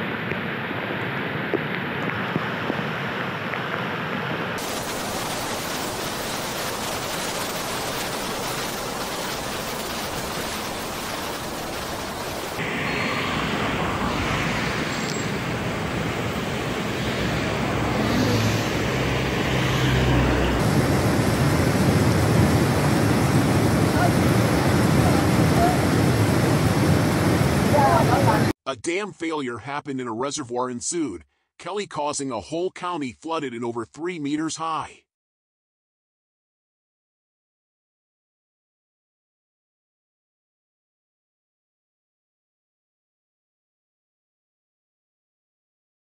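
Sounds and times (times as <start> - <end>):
floodwater rushing: 0.1 - 28.5.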